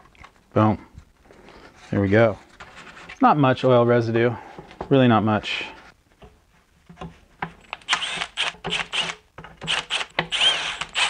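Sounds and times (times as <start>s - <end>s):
cordless driver whirring: 7.8s - 11.0s.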